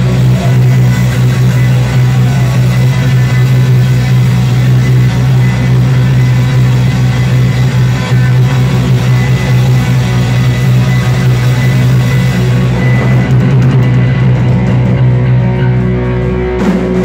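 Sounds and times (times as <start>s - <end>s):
live rock band playing: 0.0s - 17.0s.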